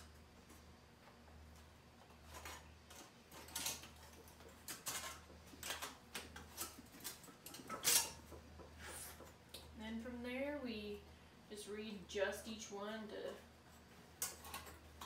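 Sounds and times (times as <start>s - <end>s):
steady low hum: 0.0s - 15.0s
sheet metal clinking and scraping: 2.1s - 8.9s, 14.2s - 15.0s.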